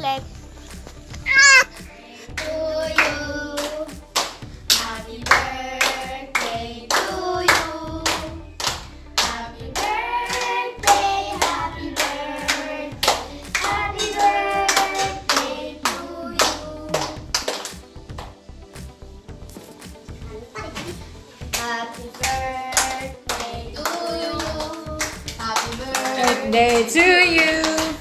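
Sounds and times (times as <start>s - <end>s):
hands clapping in steady beat: 1.1s - 19.0s, 20.8s - 28.0s
children singing: 4.9s - 8.4s, 9.4s - 17.2s, 21.6s - 27.8s.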